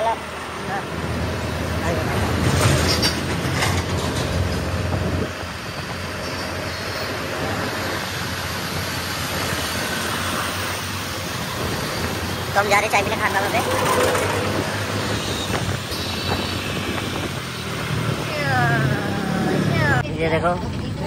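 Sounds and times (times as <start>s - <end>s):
road rumble: 0.0s - 21.0s
wind rush on microphone: 1.0s - 21.0s
scooter engine running: 11.8s - 20.0s.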